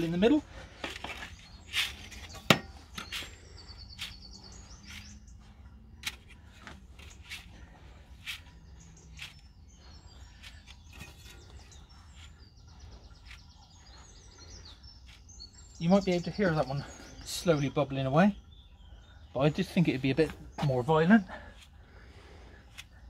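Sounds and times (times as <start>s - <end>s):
birds chirping: 0.0s - 23.0s
hands digging in sand: 8.2s - 12.4s.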